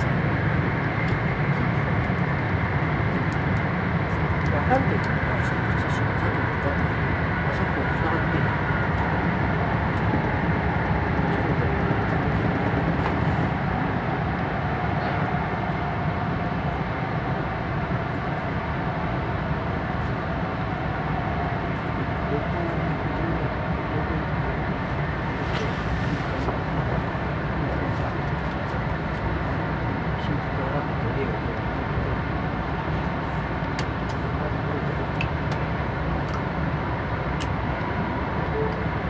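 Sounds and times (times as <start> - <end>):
train cabin rumble and hiss: 0.0 - 39.0.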